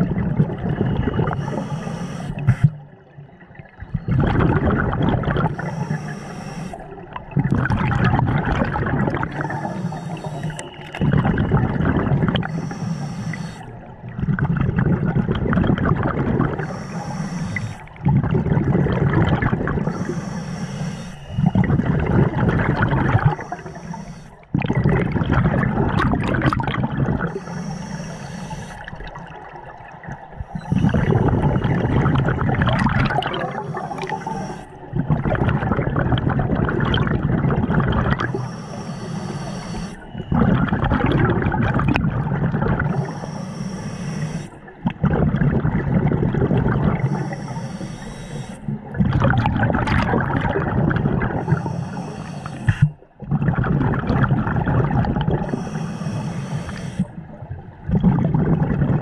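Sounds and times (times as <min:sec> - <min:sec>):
exhaled bubbles rushing: 0:00.0 - 0:01.6, 0:03.4 - 0:05.9, 0:06.8 - 0:12.7, 0:13.6 - 0:16.8, 0:17.5 - 0:20.1, 0:21.3 - 0:23.8, 0:24.4 - 0:27.5, 0:28.7 - 0:38.5, 0:39.2 - 0:43.2, 0:44.5 - 0:47.5, 0:48.6 - 0:55.8, 0:56.7 - 0:59.0
regulator inhale hiss: 0:01.2 - 0:02.9, 0:05.4 - 0:07.0, 0:09.3 - 0:11.0, 0:12.4 - 0:13.9, 0:16.6 - 0:18.0, 0:19.6 - 0:21.9, 0:23.1 - 0:24.5, 0:27.2 - 0:28.9, 0:30.3 - 0:31.7, 0:33.4 - 0:34.9, 0:38.2 - 0:40.4, 0:42.8 - 0:44.8, 0:47.0 - 0:48.8, 0:51.3 - 0:53.1, 0:55.4 - 0:57.3.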